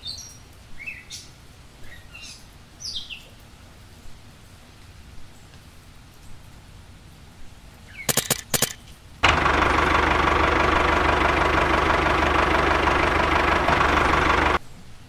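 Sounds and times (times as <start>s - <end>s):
sharp clicks: 8.0s - 14.6s
tractor engine idling: 8.1s - 14.6s.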